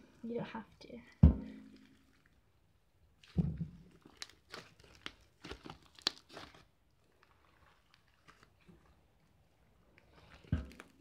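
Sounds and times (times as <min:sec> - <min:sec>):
wet crackles and squishes: 0:00.1 - 0:11.0
slime kneaded by hand: 0:03.1 - 0:11.0.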